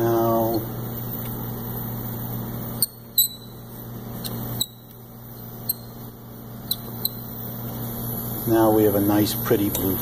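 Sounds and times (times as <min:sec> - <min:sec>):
gas flame hissing: 0:00.0 - 0:10.0
squeaky metal clicks: 0:06.6 - 0:07.2.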